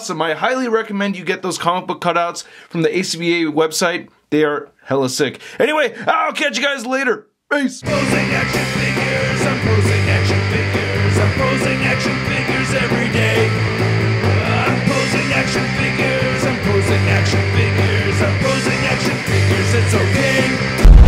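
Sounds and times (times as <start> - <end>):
bass line: 7.8 - 21.0
punk rock music: 7.8 - 21.0
steady drum beat: 7.8 - 21.0.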